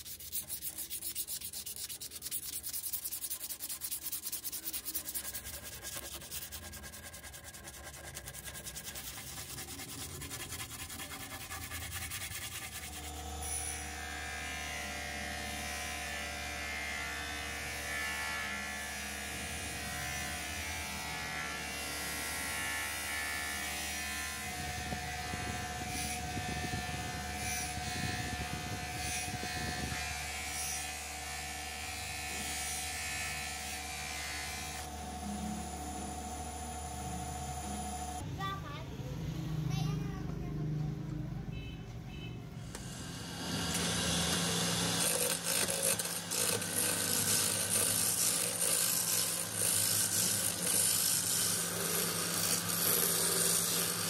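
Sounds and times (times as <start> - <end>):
abrasive rubbing on steel: 0.0 - 13.8
steel pressed on grinding wheel: 0.0 - 13.8, 42.7 - 54.0
electric bench grinder humming: 0.1 - 38.2, 42.7 - 54.0.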